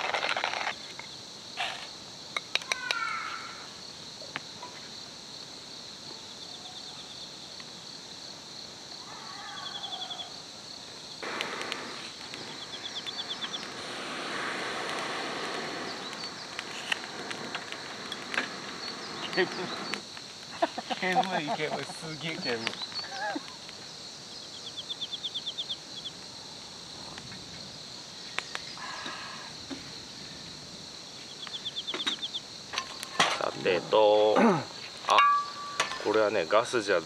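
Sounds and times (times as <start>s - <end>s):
insects chirring: 0.0s - 37.0s
soft hiss: 10.4s - 37.0s.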